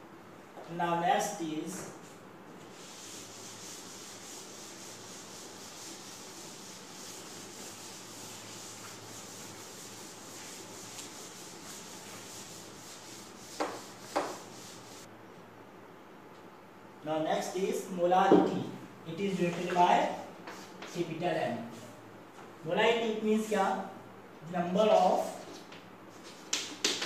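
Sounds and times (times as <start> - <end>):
duster wiping chalkboard: 1.7 - 15.1, 19.4 - 21.0.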